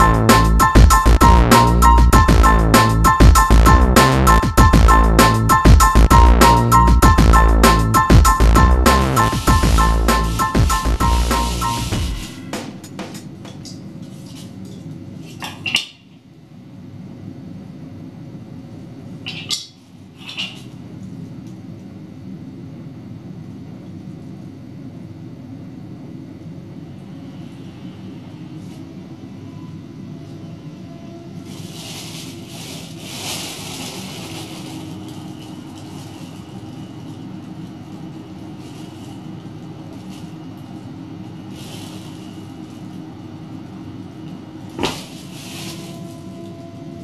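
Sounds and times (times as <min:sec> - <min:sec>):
computer fan running: 0:00.0 - 0:15.4, 0:31.5 - 0:47.0
plastic bag rustling: 0:09.2 - 0:12.9, 0:31.4 - 0:43.2, 0:44.6 - 0:46.6.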